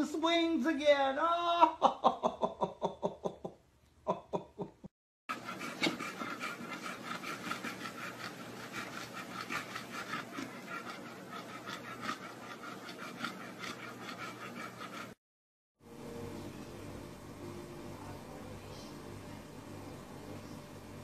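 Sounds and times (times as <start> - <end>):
dog panting: 5.3 - 15.2.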